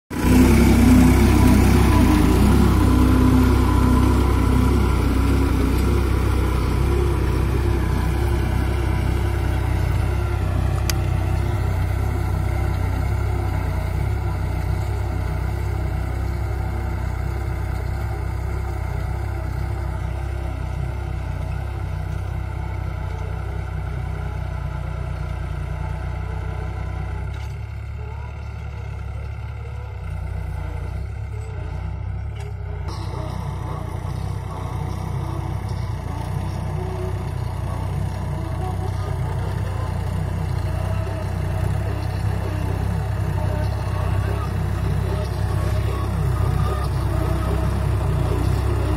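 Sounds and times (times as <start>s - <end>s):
tractor diesel engine running: 0.0s - 48.9s.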